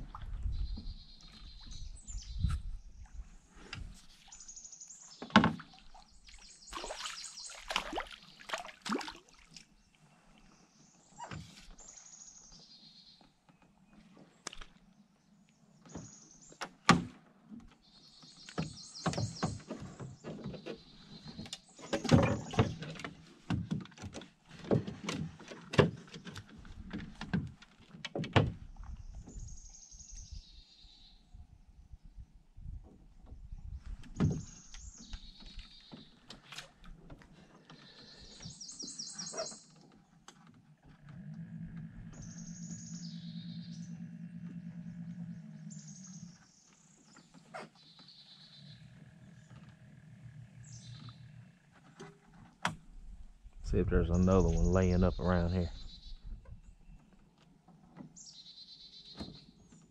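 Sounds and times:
knocks and thumps in a boat: 0.0s - 4.0s, 5.2s - 6.1s, 15.8s - 29.6s, 32.6s - 41.0s
bird singing trilled phrases: 37.8s - 39.8s, 42.1s - 44.0s, 53.7s - 57.1s.

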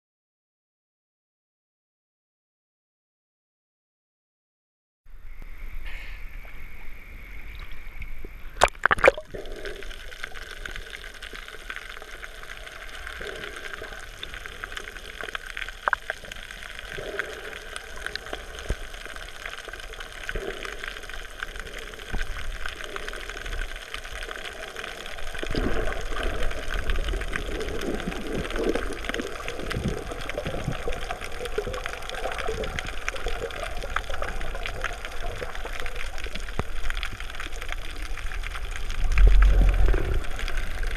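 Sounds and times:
muffled underwater gurgling: 5.8s - 40.9s
water splash: 8.6s - 9.5s.

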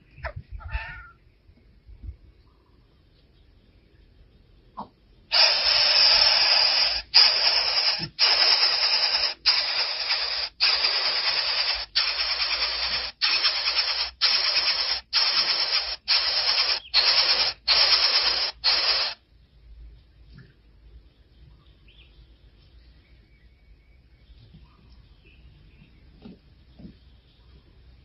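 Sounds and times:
nestlings hissing: 5.3s - 19.2s.

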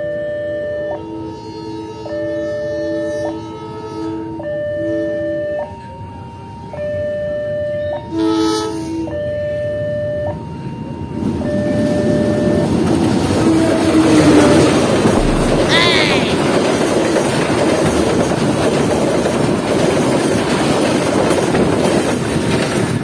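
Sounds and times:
level crossing alarm: 0.0s - 16.2s
train horn blast: 0.2s - 5.7s, 8.1s - 9.2s, 13.4s - 16.5s
train rumble: 10.8s - 23.0s.

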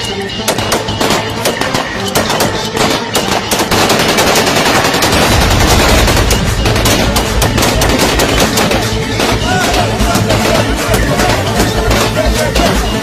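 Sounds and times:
rapid gunfire: 0.4s - 13.0s
heavy low rumble: 5.1s - 9.2s.

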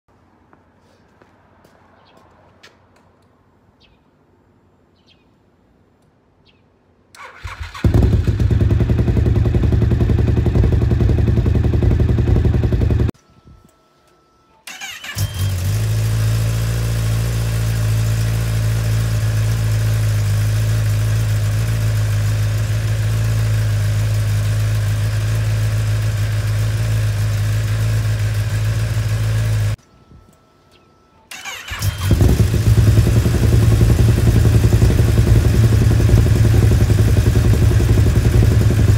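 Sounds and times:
motorcycle engine starting and idling: 7.1s - 13.2s, 14.7s - 29.8s, 31.3s - 38.9s.

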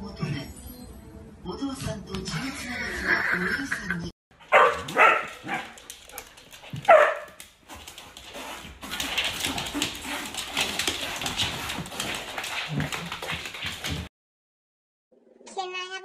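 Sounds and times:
dogs rustling and scuffling: 4.4s - 14.1s.

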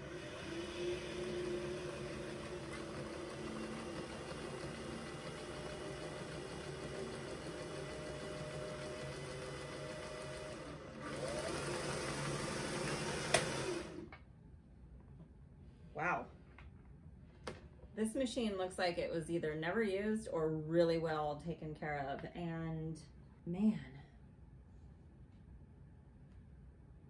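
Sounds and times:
sewing machine running: 0.0s - 14.1s.

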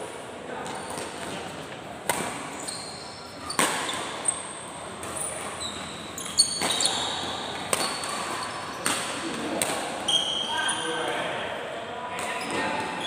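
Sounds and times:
shoes squeaking on court: 0.6s - 9.3s, 10.0s - 11.1s
racket striking shuttlecock: 2.0s - 2.6s, 3.5s - 4.1s, 7.6s - 9.9s.

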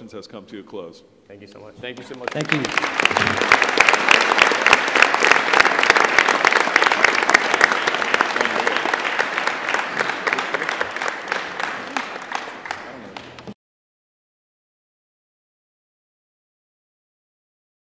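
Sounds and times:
audience applauding: 1.8s - 13.6s.

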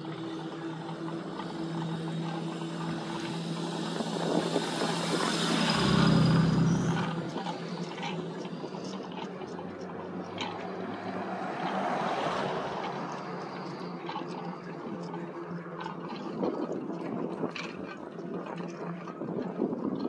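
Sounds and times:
steady low hum: 0.0s - 11.4s
wind rushing on microphone: 0.0s - 20.0s.

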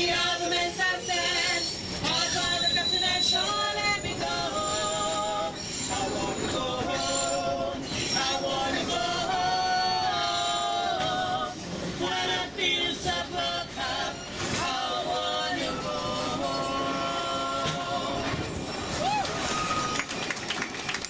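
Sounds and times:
voices singing in harmony: 0.0s - 19.1s
train rumbling: 0.0s - 21.0s.

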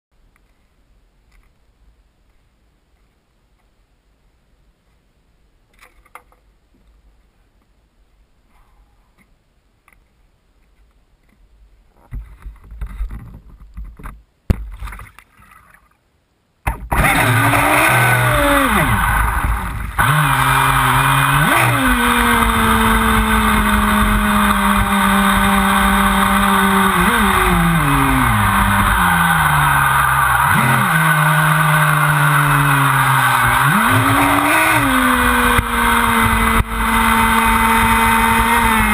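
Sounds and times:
speedboat electric motor whine: 17.0s - 38.9s.

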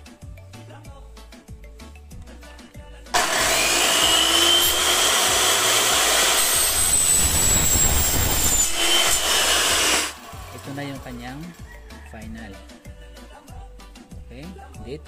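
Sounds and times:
miter saw cutting metal: 3.2s - 11.6s.

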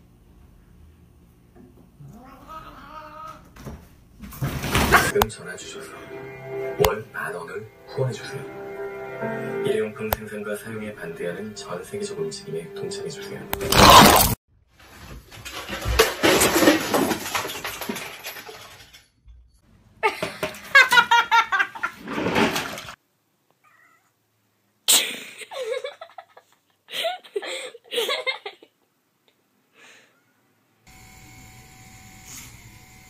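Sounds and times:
cats yowling and meowing: 2.0s - 3.5s, 23.6s - 24.1s
clatter: 15.2s - 19.6s
nail grinder motor whine: 30.9s - 33.0s.

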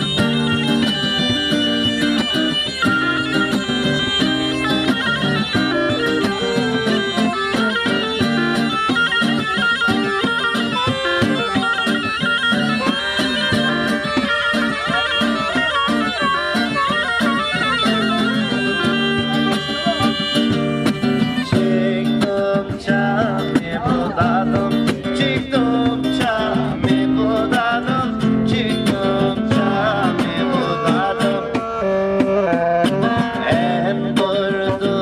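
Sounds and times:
bagpipe playing folk melody: 0.0s - 21.9s
acoustic guitar strumming: 0.0s - 35.0s.

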